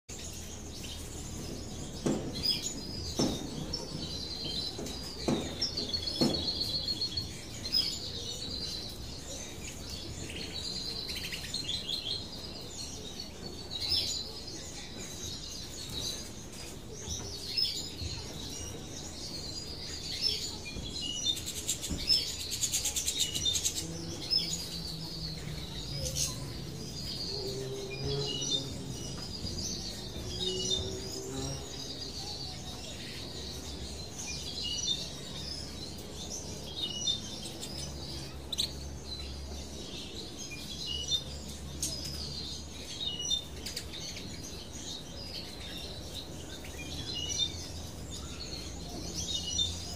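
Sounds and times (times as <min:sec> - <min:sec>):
finches chirping and trilling: 0:00.1 - 0:49.9
soft knocks: 0:01.8 - 0:06.9.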